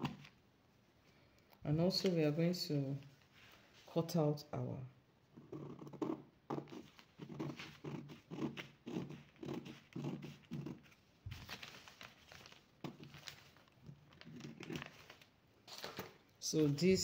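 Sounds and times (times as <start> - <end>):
paper handling: 1.8 - 2.4, 6.7 - 17.0.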